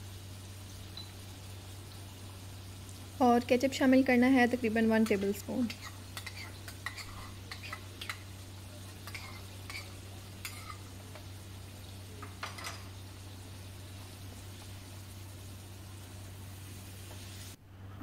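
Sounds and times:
faint sizzle: 0.0 - 18.0
spoon scraping a pan: 5.0 - 11.3.

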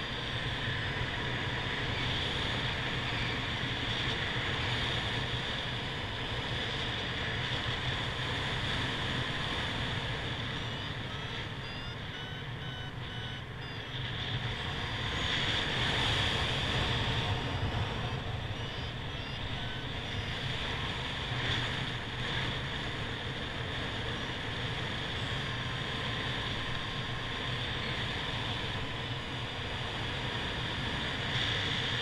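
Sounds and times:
variometer beeps rising in pitch: 10.2 - 15.3, 17.8 - 21.1.

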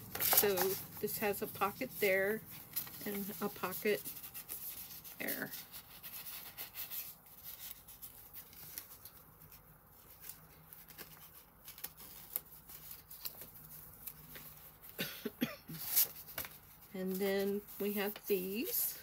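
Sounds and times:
paper rustling and scraping: 0.0 - 15.0, 15.8 - 19.0.

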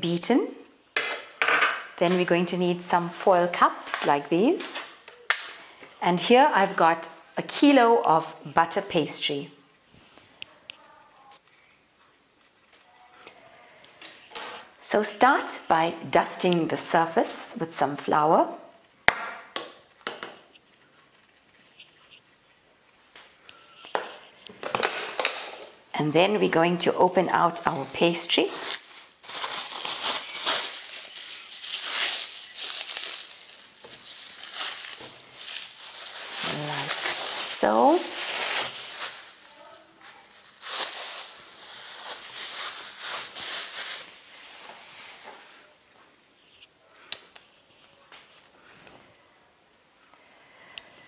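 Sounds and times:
plastic film crinkling: 19.7 - 25.8, 26.7 - 48.8.

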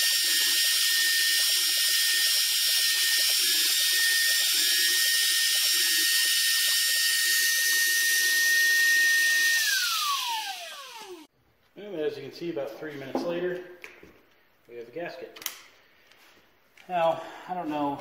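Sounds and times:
lower whir: 0.0 - 11.3
router spindle high whine: 0.0 - 11.3.

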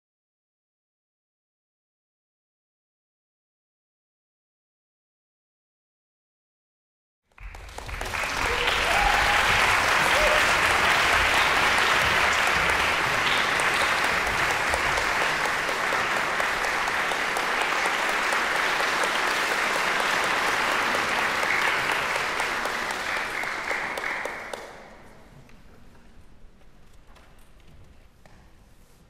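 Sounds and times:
audience applauding: 7.3 - 25.1.

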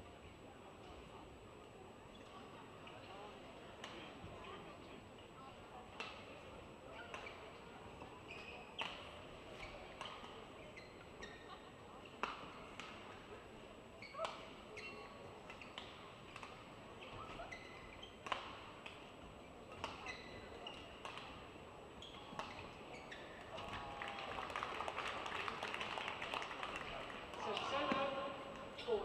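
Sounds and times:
faint murmur in a hall: 0.0 - 29.0
shoes squeaking on court: 7.0 - 11.7, 14.0 - 23.9
racket striking shuttlecock: 18.2 - 19.0, 20.7 - 21.4.

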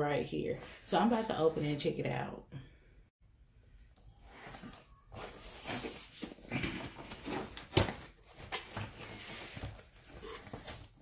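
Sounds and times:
cardboard scraping and rustling: 4.3 - 11.0.

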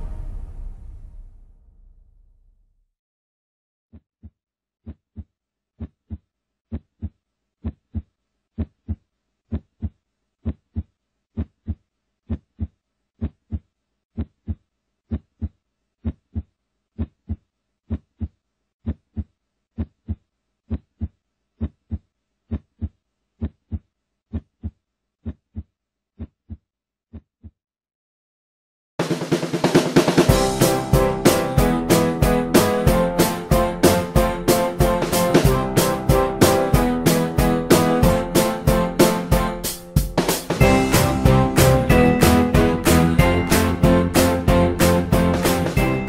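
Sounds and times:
heartbeat thumps: 4.8 - 27.6.

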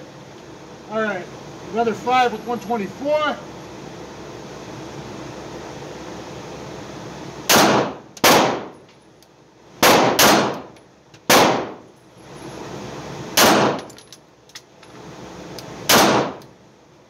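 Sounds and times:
pistol shots echoing: 7.5 - 8.7, 9.8 - 10.7, 11.3 - 11.8, 13.4 - 13.8, 15.9 - 16.4.

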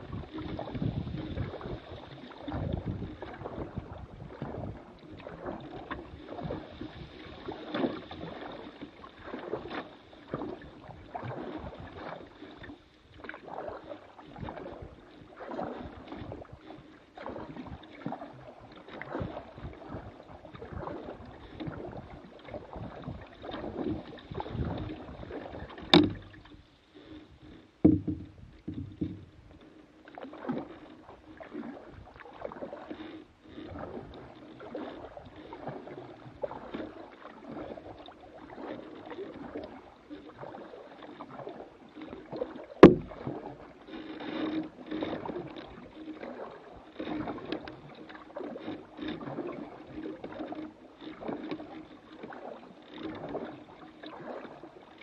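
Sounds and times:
paddle splashing water: 0.0 - 55.0
sharp knocks: 26.0 - 26.2, 27.8 - 29.3, 42.8 - 43.2.

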